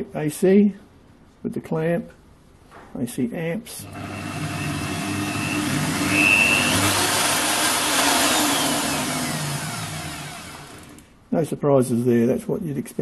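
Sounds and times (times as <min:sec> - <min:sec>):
electric drill running: 0:03.8 - 0:11.1.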